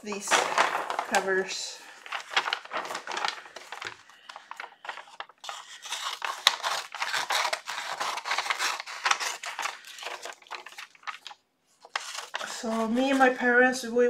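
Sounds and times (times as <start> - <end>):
paper rustling: 0.0 - 13.6
scissors snipping paper: 4.8 - 13.5.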